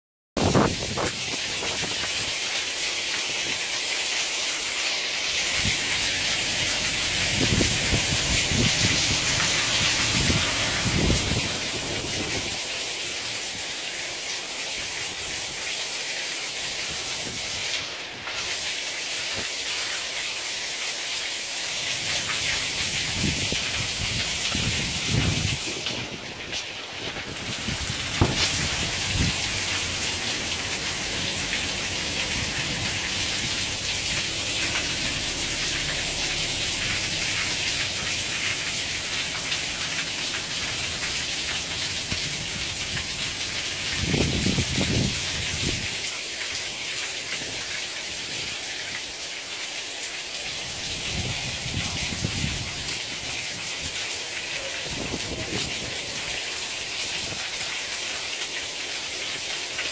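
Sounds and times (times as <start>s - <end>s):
torrential rain hissing: 0.4s - 59.9s
low rumble: 31.0s - 39.2s.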